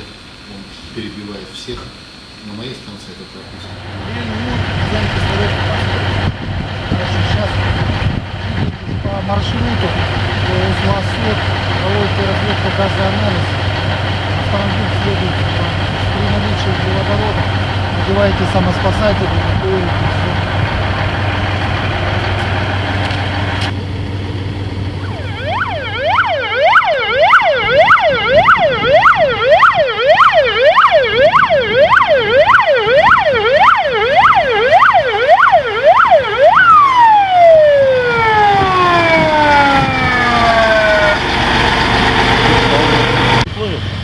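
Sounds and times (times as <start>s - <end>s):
truck engine humming: 0.0s - 44.0s
fire truck siren wailing: 3.8s - 43.5s.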